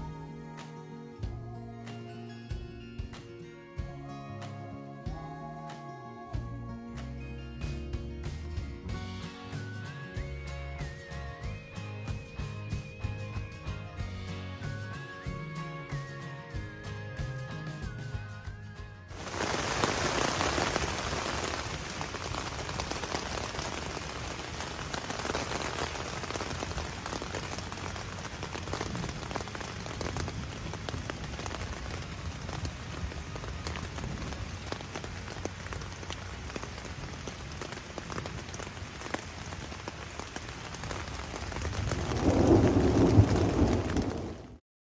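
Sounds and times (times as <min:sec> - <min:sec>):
rain falling: 0:06.4 - 0:44.6
thunder rumble: 0:19.1 - 0:44.6.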